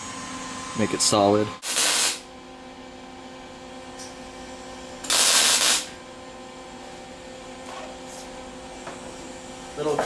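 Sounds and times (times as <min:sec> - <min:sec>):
steady hum: 0:00.0 - 0:10.0
welder arcing on sheet metal: 0:01.6 - 0:02.3, 0:05.0 - 0:06.0.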